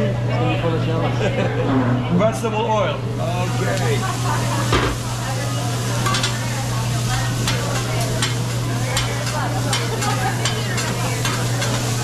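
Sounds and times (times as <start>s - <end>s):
food sizzling on a griddle: 3.2s - 12.0s.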